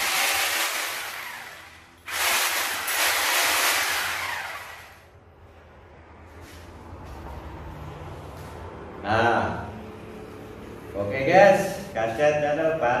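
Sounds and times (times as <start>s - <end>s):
electric drill whirring: 0.0s - 5.1s.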